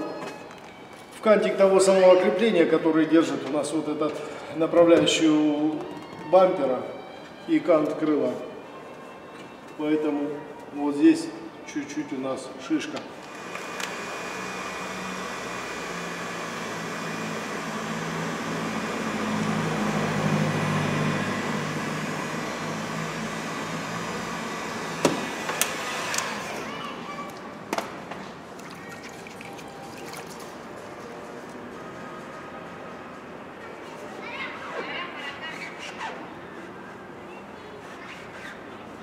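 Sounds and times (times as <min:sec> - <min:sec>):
heat gun blowing: 0:13.2 - 0:26.7.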